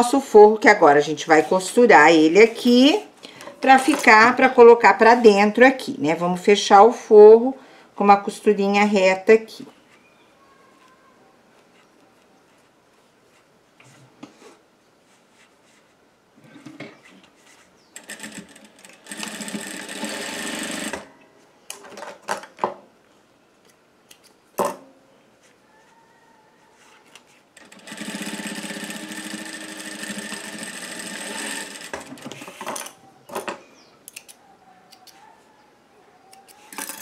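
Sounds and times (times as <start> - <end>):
sewing machine running: 18.0 - 21.1, 27.6 - 32.6.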